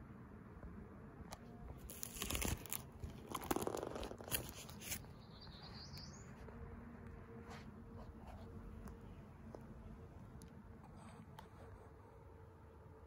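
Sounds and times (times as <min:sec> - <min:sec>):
plastic sleeves crinkling: 0:01.7 - 0:05.0.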